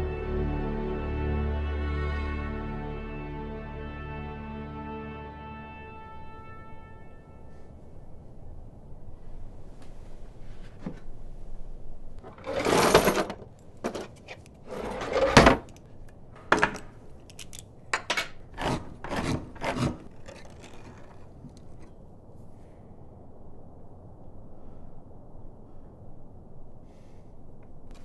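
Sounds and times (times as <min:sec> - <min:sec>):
can opener rasping: 0:18.6 - 0:21.8
tin can scraping on wood: 0:18.6 - 0:21.9.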